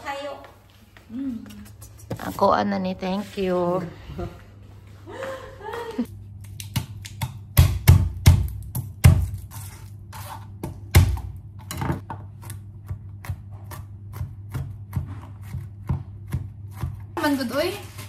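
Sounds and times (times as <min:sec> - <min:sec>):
knife chopping on plastic board: 0:12.0 - 0:17.2.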